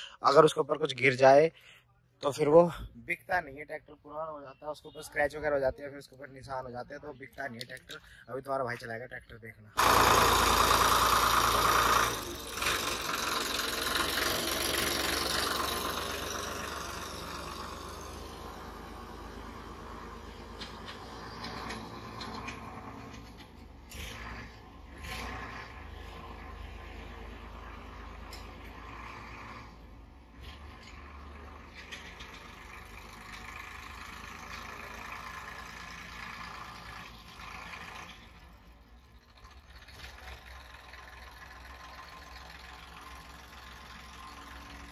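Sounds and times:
diesel tractor engine running: 9.8 - 44.9.

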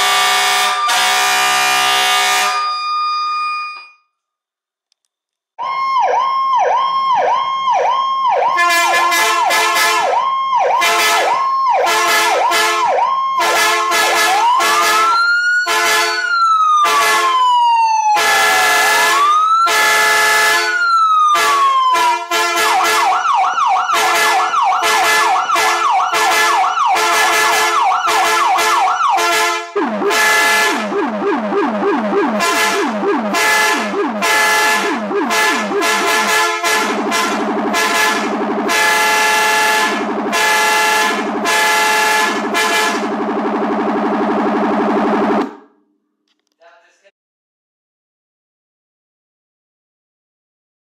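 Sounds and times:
short horn blasts: 0.0 - 2.7, 8.6 - 10.1, 10.8 - 16.2, 21.4 - 23.1, 24.0 - 30.8, 32.4 - 43.1
emergency vehicle siren: 0.0 - 4.1, 5.6 - 45.8.

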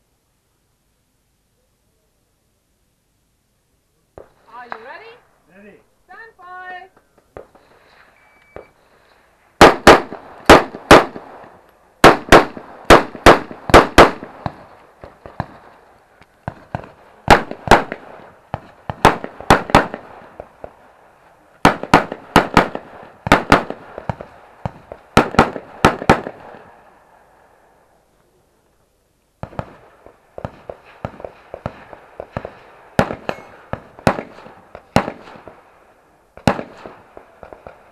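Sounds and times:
rifle shots with echo: 9.6 - 15.8, 16.4 - 20.8, 21.6 - 26.8, 29.4 - 37.9.

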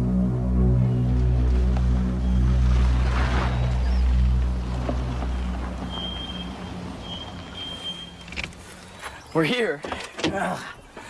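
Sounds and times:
low music drone: 0.0 - 9.3
car driving by on dirt road: 1.4 - 8.3.

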